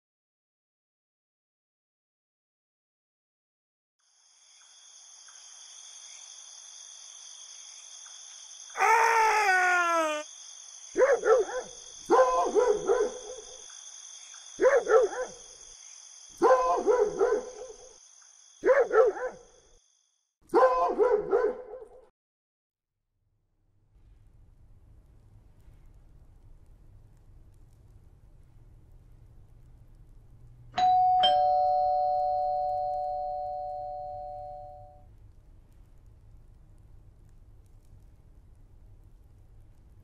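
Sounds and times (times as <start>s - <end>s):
dog barking: 11.0s - 13.6s, 14.6s - 15.4s, 16.4s - 18.0s, 18.6s - 19.5s, 20.5s - 22.1s.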